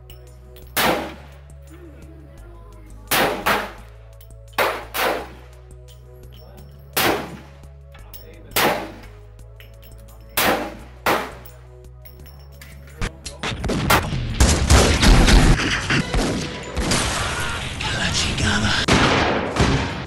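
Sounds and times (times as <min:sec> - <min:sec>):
music: 0:00.0 - 0:20.0
pistol shots with ringing tail: 0:00.6 - 0:01.4, 0:03.1 - 0:03.8, 0:04.6 - 0:05.4, 0:06.9 - 0:07.5, 0:08.5 - 0:09.1, 0:10.3 - 0:11.5
rapid gunfire: 0:13.5 - 0:17.2.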